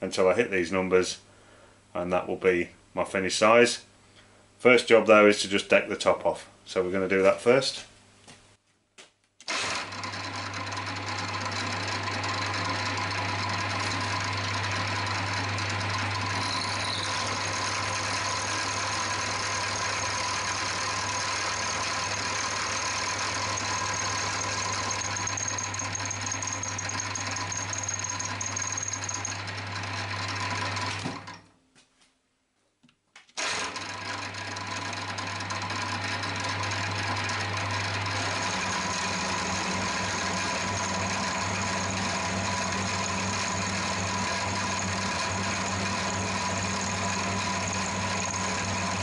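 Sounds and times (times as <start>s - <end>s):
milling machine motor hum: 9.9s - 31.3s, 33.8s - 49.0s
thin high whine: 16.3s - 20.1s, 21.9s - 29.4s, 38.2s - 49.0s.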